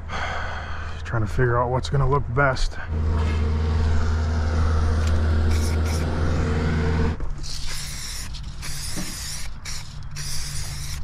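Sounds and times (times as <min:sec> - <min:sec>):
engine idling: 0:02.8 - 0:07.2
aerosol paint can spraying: 0:05.0 - 0:06.1, 0:07.4 - 0:11.0.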